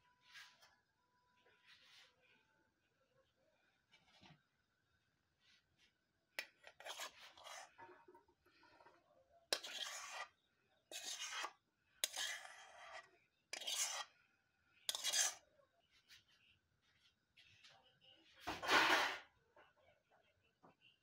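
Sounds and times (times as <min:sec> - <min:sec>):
rice scraped from frying pan: 0:09.6 - 0:10.3, 0:10.9 - 0:13.0, 0:13.6 - 0:14.1, 0:14.9 - 0:15.4.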